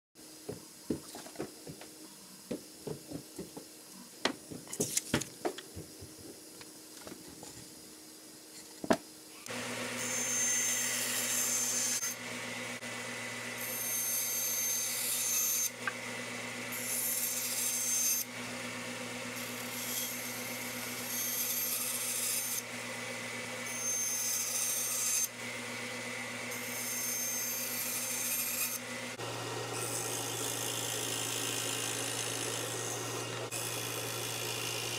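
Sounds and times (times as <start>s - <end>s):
band saw motor hum: 9.3s - 34.9s
band saw cutting wood: 9.4s - 34.9s.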